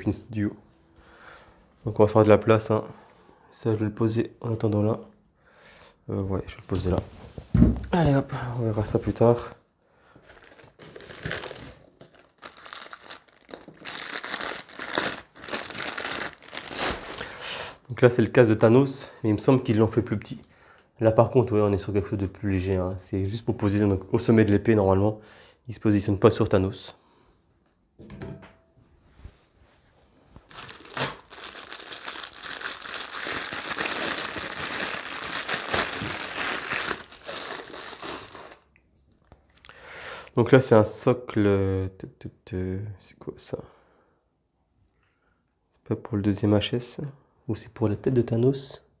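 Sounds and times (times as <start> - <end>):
packaging crinkling: 10.2 - 17.9, 30.4 - 38.7.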